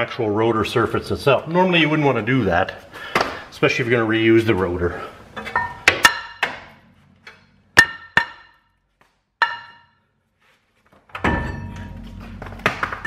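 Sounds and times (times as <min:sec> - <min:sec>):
hammer striking brake rotor: 0:07.8 - 0:08.7, 0:09.4 - 0:10.0.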